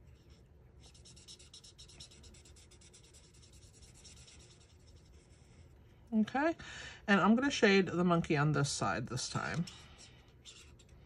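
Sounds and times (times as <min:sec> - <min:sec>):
marker nib scratching on cardstock: 0:00.1 - 0:05.6, 0:09.6 - 0:11.0.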